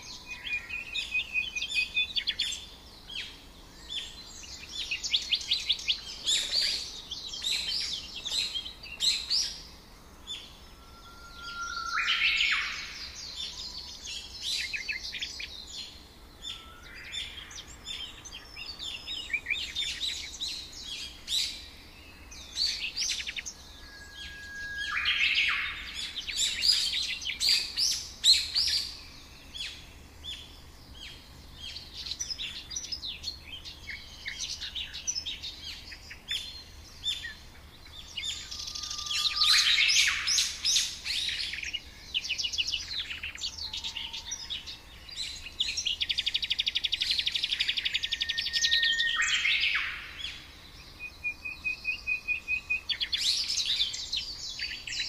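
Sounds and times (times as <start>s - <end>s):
small birds chirping and trilling: 0.0s - 55.0s
thin steady whistles: 10.3s - 29.8s, 37.1s - 55.0s.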